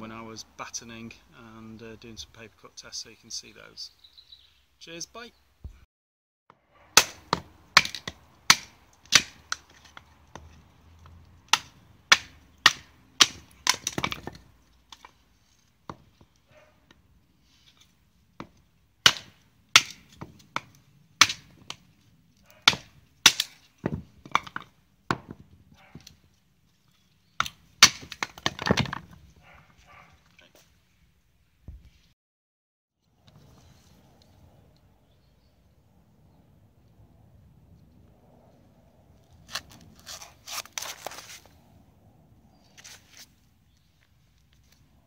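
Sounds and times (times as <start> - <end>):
wood cracking: 7.0 - 17.0, 17.7 - 29.6.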